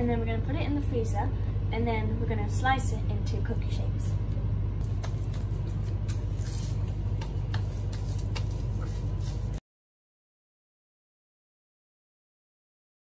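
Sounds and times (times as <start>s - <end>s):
cling film crinkling: 4.8s - 9.6s.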